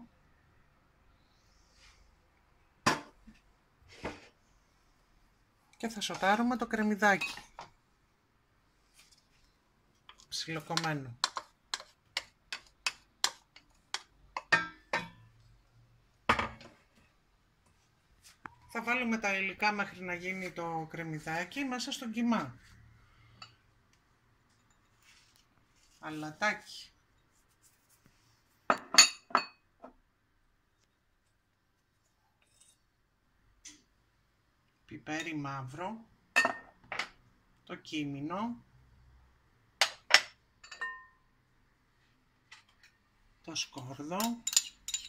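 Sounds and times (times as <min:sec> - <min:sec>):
onion scraped and stirred: 0:08.8 - 0:15.2, 0:24.5 - 0:28.6
wooden spoon knocking on bowl: 0:10.7 - 0:15.1
glass clinking: 0:14.4 - 0:15.3, 0:28.7 - 0:29.6, 0:40.6 - 0:41.2, 0:44.2 - 0:45.0.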